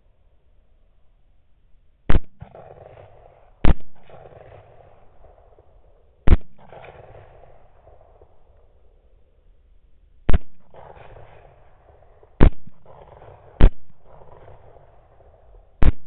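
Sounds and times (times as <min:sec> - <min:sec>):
rifle shots: 0:02.1 - 0:08.8, 0:10.3 - 0:16.0.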